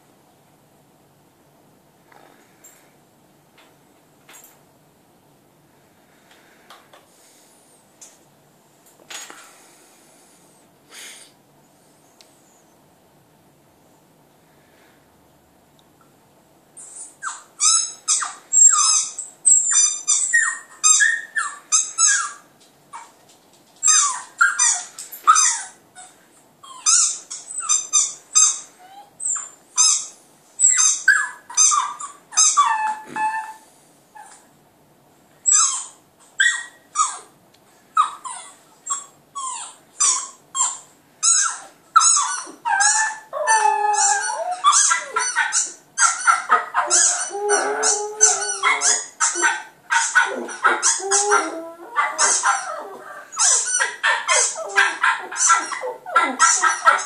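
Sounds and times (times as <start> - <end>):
dog barking and yipping: 38.0 - 57.0
dog howling: 46.4 - 57.0.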